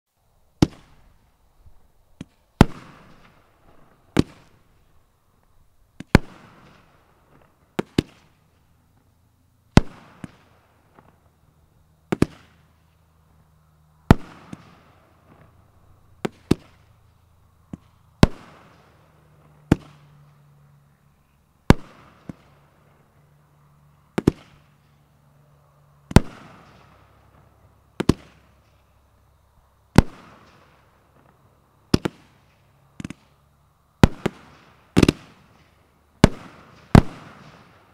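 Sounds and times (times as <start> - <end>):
firework bangs: 0.6 - 1.1, 2.2 - 4.8, 6.0 - 8.5, 9.7 - 11.3, 12.1 - 12.9, 14.0 - 17.0, 17.6 - 20.4, 21.6 - 23.2, 24.1 - 25.0, 26.0 - 28.9, 29.9 - 33.4, 34.0 - 37.9
firework crackle: 0.6 - 29.2, 29.9 - 33.4, 34.0 - 37.9.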